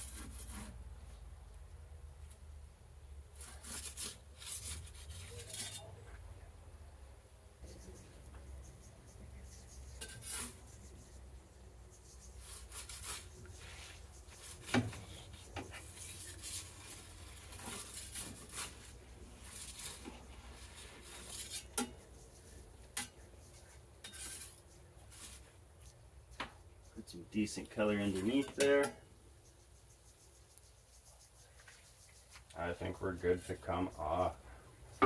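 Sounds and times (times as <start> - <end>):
metal peel scraping on stone: 3.4 - 6.0, 9.9 - 10.7, 14.4 - 22.0, 22.9 - 23.2, 24.0 - 25.4, 27.8 - 29.0.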